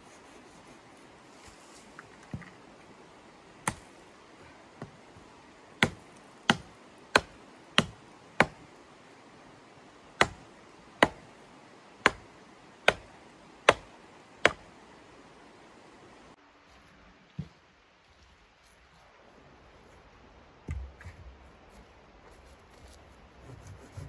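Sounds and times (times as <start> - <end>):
hatchet chopping wood: 3.6 - 3.9, 5.8 - 8.6, 10.2 - 11.3, 12.0 - 14.6.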